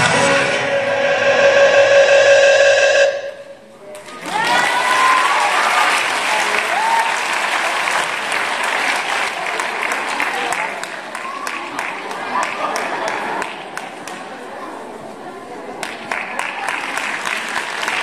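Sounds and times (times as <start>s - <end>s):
dance music: 0.0s - 3.6s
audience applause: 4.0s - 13.6s, 15.8s - 18.0s
audience cheering: 4.2s - 7.2s.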